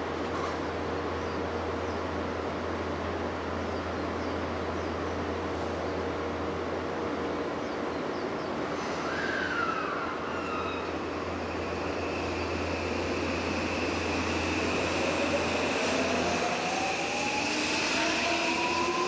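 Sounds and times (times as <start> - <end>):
electric train hum: 0.0 - 19.0
train whine rising in pitch: 9.0 - 19.0.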